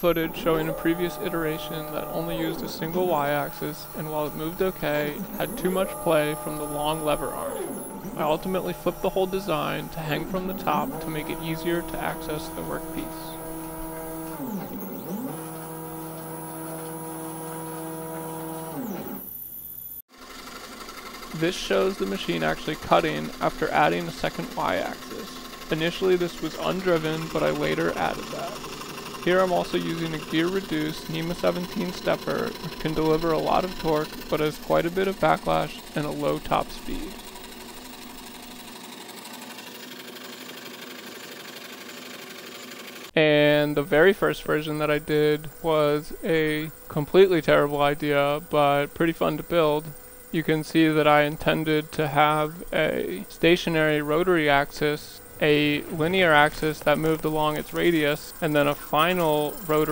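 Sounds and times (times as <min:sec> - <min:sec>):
quiet hum: 0:00.0 - 0:20.0, 0:21.4 - 0:38.7, 0:43.2 - 0:59.9
stepper motors whining: 0:00.0 - 0:59.9.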